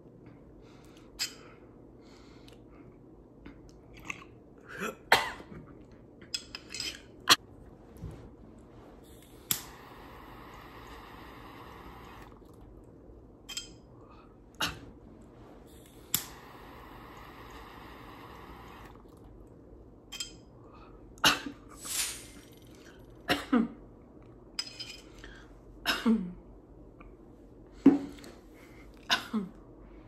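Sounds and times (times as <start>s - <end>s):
woman coughing: 4.7s - 5.6s, 23.3s - 23.8s, 25.9s - 26.4s, 29.1s - 29.6s
water pipe hissing: 7.8s - 12.6s, 15.3s - 19.2s, 21.7s - 23.1s.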